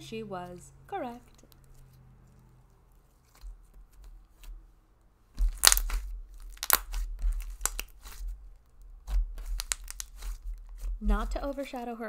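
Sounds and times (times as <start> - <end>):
slime thudding on table: 5.4 - 7.8
slime sticky clicks and pops: 5.4 - 8.2, 9.1 - 10.4.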